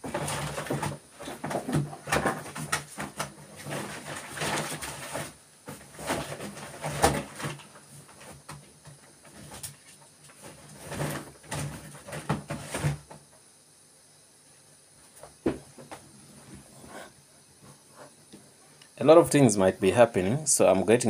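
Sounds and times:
objects clattering and knocking: 0.0 - 13.4.

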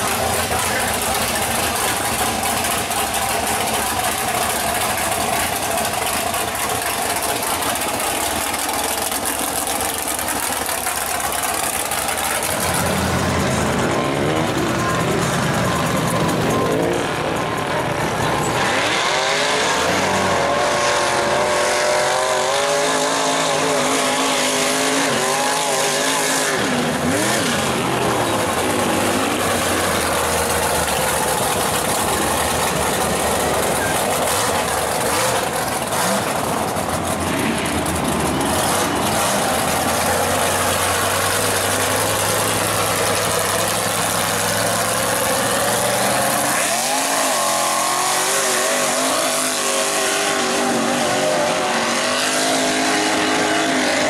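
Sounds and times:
truck engine revving: 0.0 - 54.0.

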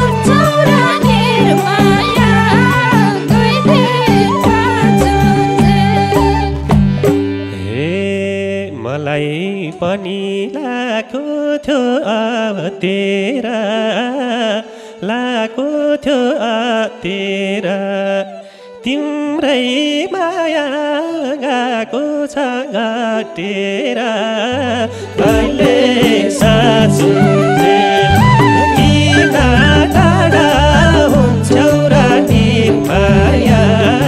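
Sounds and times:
madal drum: 0.0 - 8.0, 25.2 - 34.0
bass: 0.0 - 8.8, 24.6 - 34.0
flute: 0.0 - 34.0
harmonium: 0.0 - 34.0
sarangi: 0.0 - 34.0.

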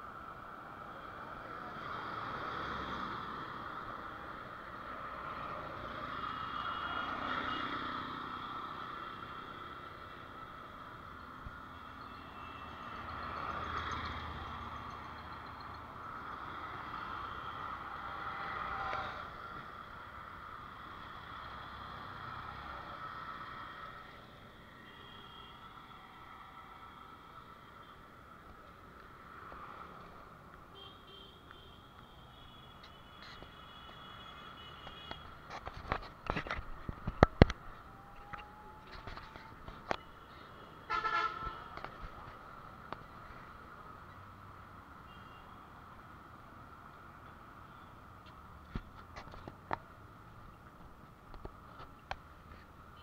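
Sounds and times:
vehicle horn toot: 40.9 - 41.6.

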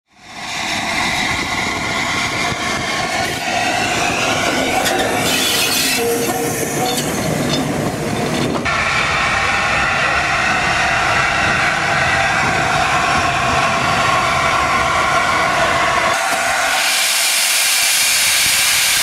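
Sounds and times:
steam locomotive passing: 0.1 - 19.0
steam hiss: 8.7 - 19.0.

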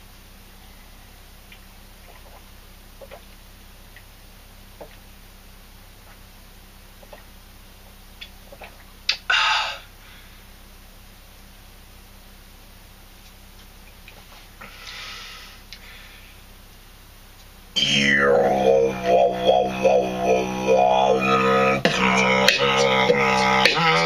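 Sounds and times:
beatboxing with hummed drone: 1.4 - 4.1, 4.7 - 5.1, 6.9 - 10.0, 17.8 - 24.0.

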